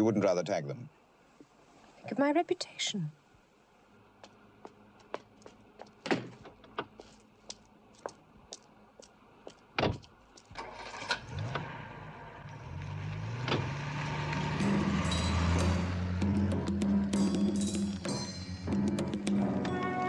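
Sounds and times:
footsteps on pavement: 4.2s - 10.6s
car engine starting and revving: 10.5s - 17.8s
car door shutting: 13.4s - 13.8s.

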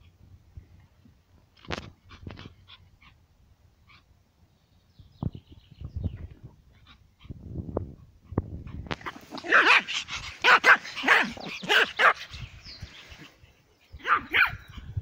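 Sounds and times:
small dog barking: 9.0s - 12.3s, 14.0s - 14.8s.

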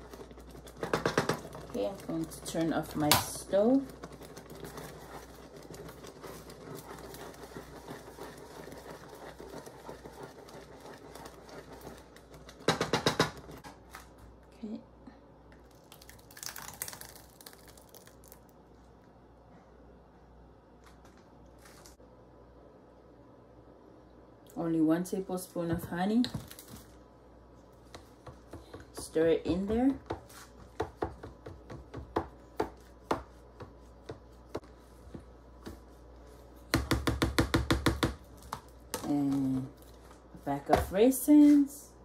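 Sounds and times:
wooden spatula stirring porridge: 0.0s - 13.6s, 27.6s - 41.7s.

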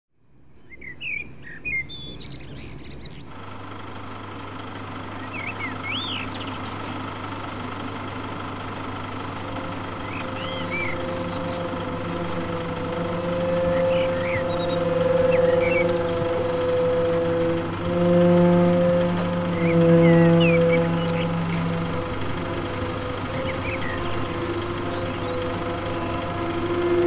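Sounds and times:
droning hum: 2.8s - 27.0s
birds chirping: 5.0s - 27.0s
high held tone: 6.8s - 27.0s.

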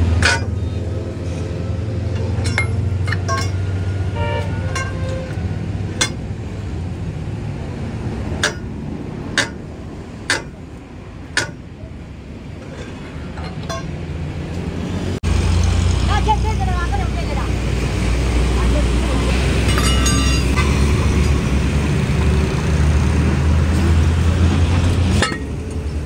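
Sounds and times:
metal tools clinking on wheel hub: 0.2s - 6.3s, 12.6s - 14.1s, 19.6s - 21.4s, 25.0s - 26.0s.

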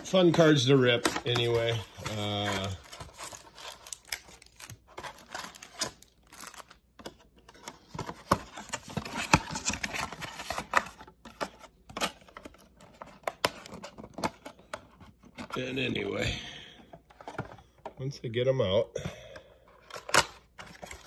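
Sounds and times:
card boxes being handled: 0.0s - 21.0s.

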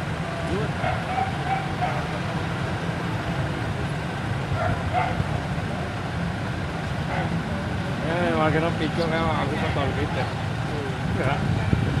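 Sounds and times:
low rumble of street traffic: 0.0s - 12.0s
dog barking: 0.8s - 2.1s, 4.6s - 5.2s.

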